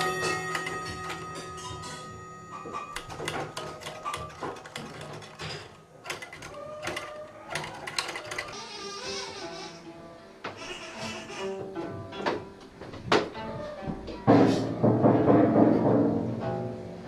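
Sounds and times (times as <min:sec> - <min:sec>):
metal tubes clinking: 0:00.0 - 0:08.5.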